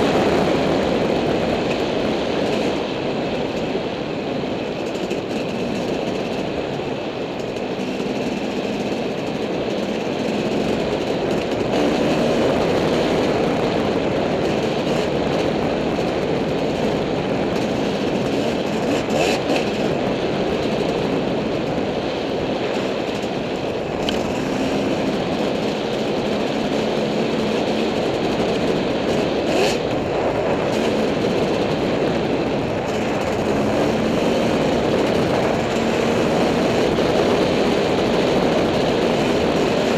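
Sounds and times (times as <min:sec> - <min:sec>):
dirt bike engine running: 0:00.0 - 0:39.9
wind noise: 0:00.0 - 0:39.9
rattle noise: 0:04.6 - 0:13.3.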